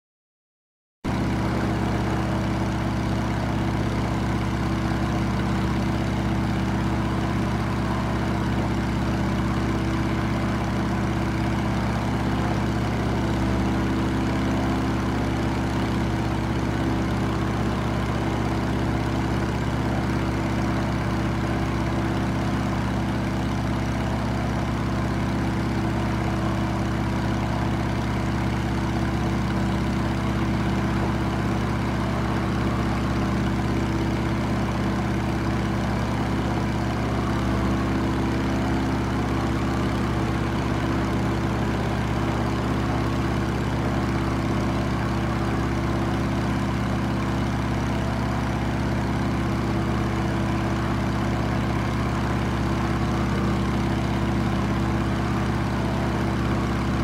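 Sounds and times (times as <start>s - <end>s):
propeller aircraft engine droning: 1.1s - 57.0s.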